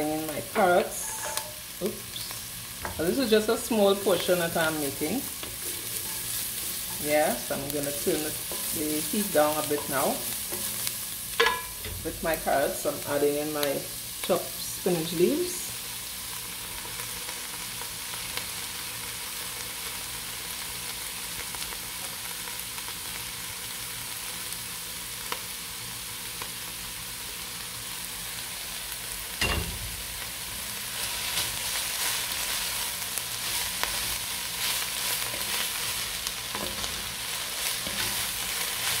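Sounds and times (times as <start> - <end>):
vegetables sizzling in oil: 0.0 - 39.0
wooden spatula stirring and scraping: 2.8 - 11.5.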